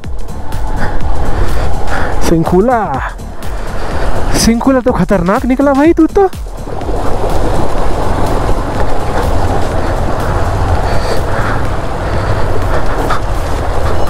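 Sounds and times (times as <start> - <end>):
motorcycle running in low gear: 6.4 - 14.0.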